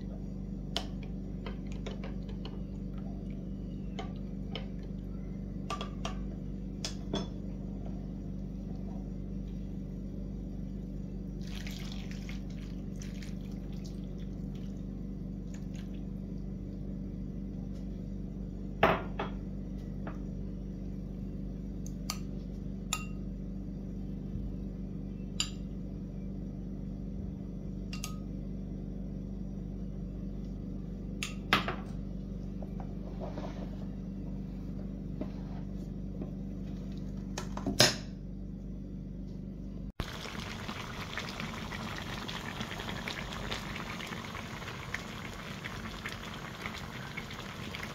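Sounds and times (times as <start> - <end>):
sauce pouring and dripping: 11.4 - 14.7, 40.0 - 47.9
low hum: 38.4 - 47.9.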